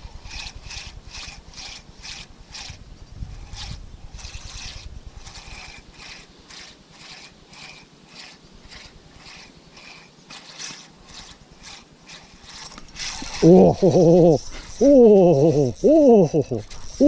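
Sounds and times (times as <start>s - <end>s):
low wind rumble: 0.0s - 6.5s
fishing reel whirring: 0.0s - 17.0s.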